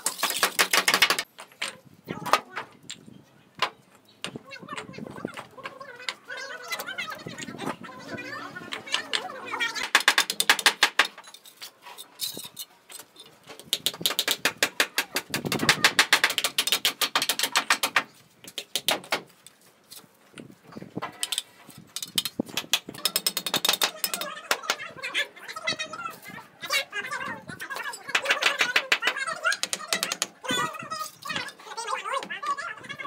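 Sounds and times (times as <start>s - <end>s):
trowel and bricks knocking: 0.0s - 3.0s, 8.7s - 11.4s, 13.5s - 19.3s, 21.0s - 24.8s, 28.1s - 30.4s.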